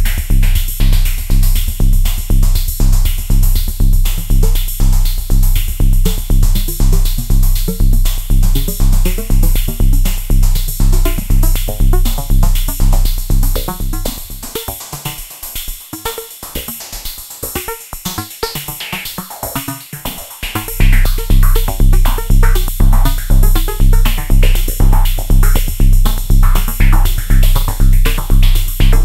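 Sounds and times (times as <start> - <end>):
deep bass drum: 0.0 - 15.1, 20.4 - 29.0
hi-hat ticks: 0.0 - 29.0
pitched synth notes: 20.4 - 29.0.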